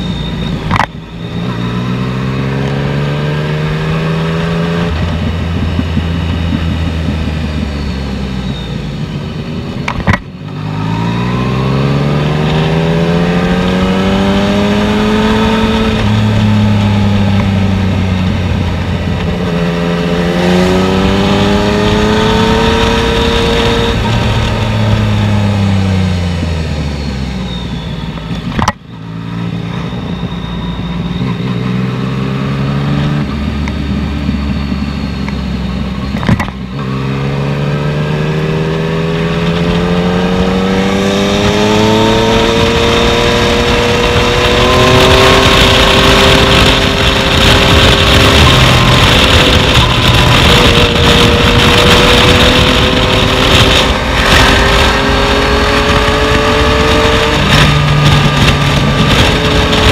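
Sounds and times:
motorcycle engine revving: 0.0 - 59.9
wind rush: 32.8 - 59.9.

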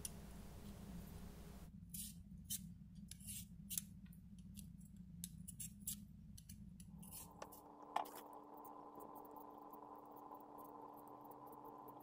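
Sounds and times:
peeler scraping potato skin: 1.9 - 3.9.

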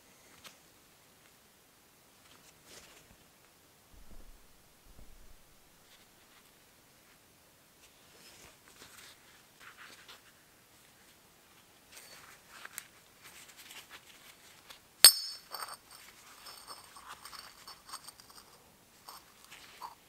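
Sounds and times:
gloves rustling and scraping metal: 11.9 - 20.0
metallic clink ringing: 15.0 - 18.4.

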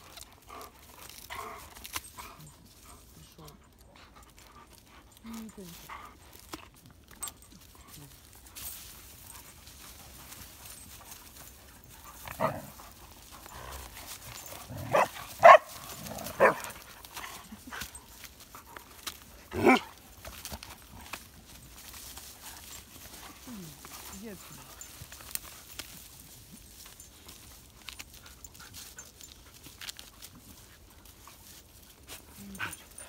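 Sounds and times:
dog barking: 14.8 - 15.7, 16.4 - 16.7, 19.6 - 19.9.

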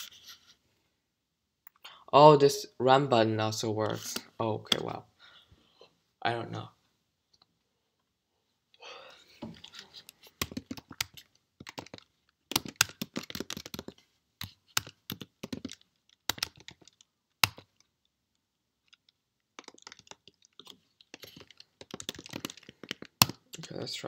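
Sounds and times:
typing on a keyboard: 10.4 - 17.8, 18.9 - 23.6.

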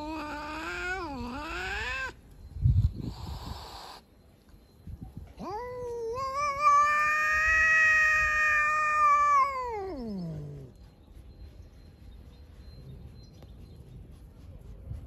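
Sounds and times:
cat yowling: 0.0 - 2.2, 5.4 - 10.7.

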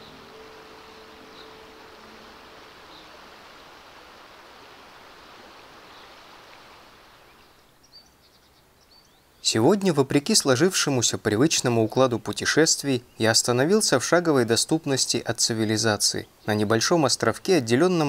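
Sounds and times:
river water rushing: 0.0 - 7.6.

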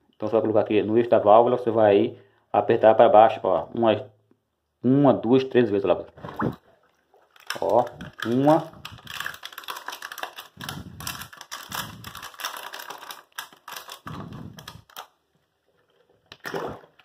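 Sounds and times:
plastic cups crackling and clicking: 6.1 - 17.0.

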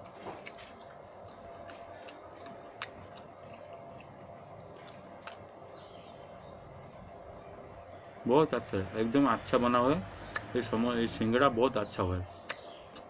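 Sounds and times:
person chewing crunchy food: 0.0 - 5.8.

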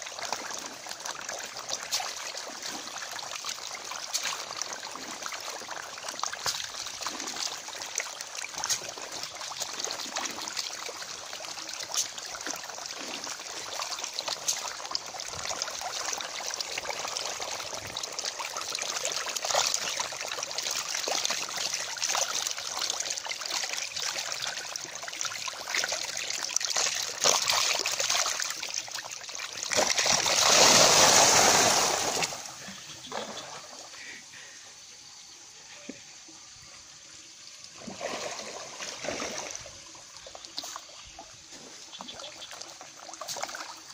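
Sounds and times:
fish splashing at surface: 26.6 - 33.4.

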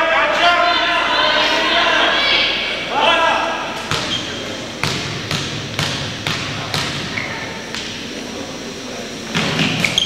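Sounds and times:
basketball bouncing on hardwood floor: 4.8 - 7.0.

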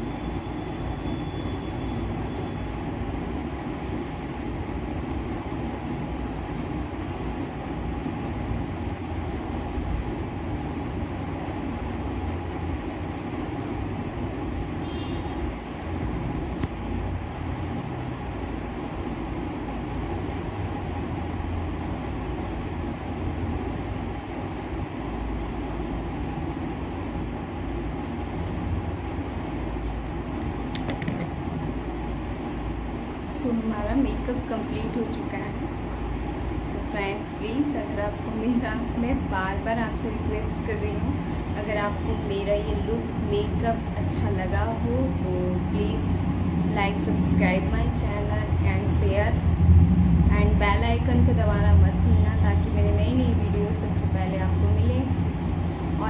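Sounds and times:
low rumbling background noise: 0.0 - 56.0
low rumble: 45.8 - 56.0.

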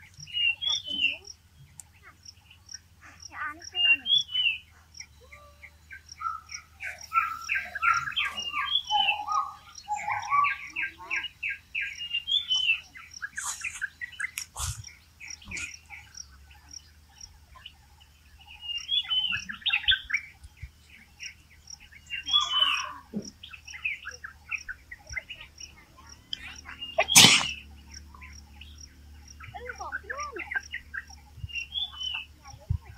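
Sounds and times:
high ticking bird call: 0.0 - 17.8, 18.4 - 32.7
songbirds chirping: 0.0 - 32.9
short breathy burst: 13.4 - 15.7.

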